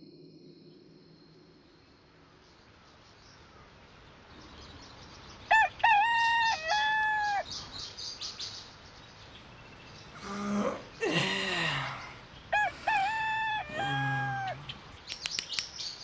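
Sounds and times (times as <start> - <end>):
small birds chirping: 1.8 - 5.9, 6.8 - 16.0
rooster crowing: 5.5 - 7.5, 11.5 - 14.9.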